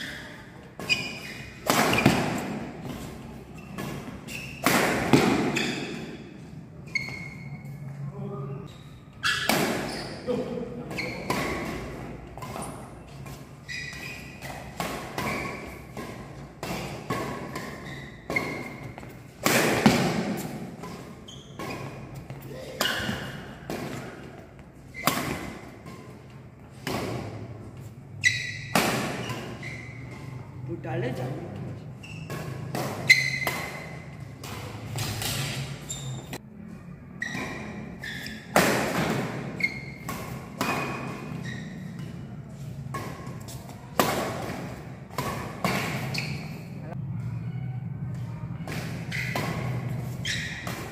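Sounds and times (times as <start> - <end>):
badminton racket hitting shuttlecock: 0.0 - 6.2, 9.2 - 10.2, 10.8 - 27.6, 28.2 - 30.4, 32.1 - 36.4, 37.2 - 46.7, 48.1 - 50.9
shoe squeaks: 0.0 - 19.3, 20.2 - 30.6, 31.2 - 50.9.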